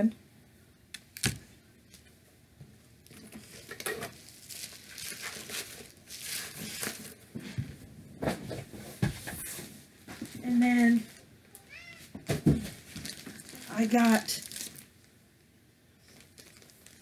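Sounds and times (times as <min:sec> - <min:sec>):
packaging rustling and crinkling: 0:03.0 - 0:07.5, 0:09.4 - 0:11.2, 0:12.5 - 0:15.1, 0:16.0 - 0:17.0.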